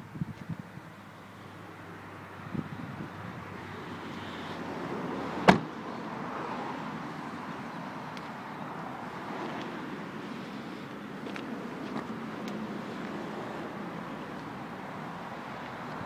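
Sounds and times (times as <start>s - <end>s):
car door slamming: 5.4s - 5.8s.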